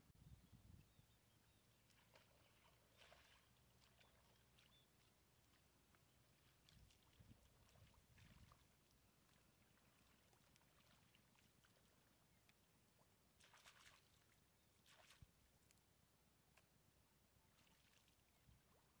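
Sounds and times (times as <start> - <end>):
wading through muddy water: 1.5 - 15.8, 17.5 - 19.0.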